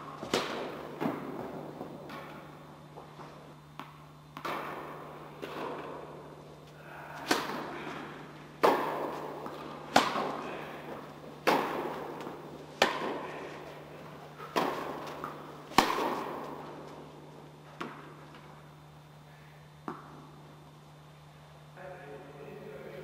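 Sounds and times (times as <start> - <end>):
tennis ball bouncing on court: 3.8 - 6.1, 8.6 - 13.3, 14.4 - 17.0, 17.8 - 18.5, 19.8 - 20.3
tennis ball struck by rackets: 3.8 - 6.2, 7.2 - 7.8, 8.6 - 13.4, 14.4 - 17.0, 19.8 - 20.3.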